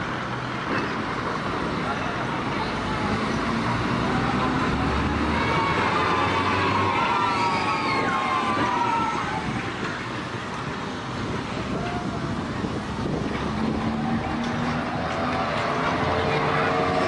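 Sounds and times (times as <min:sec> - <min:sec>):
street and traffic noise: 0:00.0 - 0:17.0
tram wheels squealing on rails: 0:04.8 - 0:10.0.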